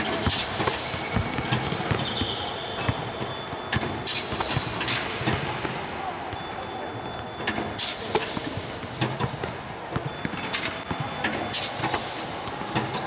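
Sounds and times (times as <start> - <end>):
basketballs bouncing on hardwood floor: 0.8 - 4.7, 8.4 - 11.2.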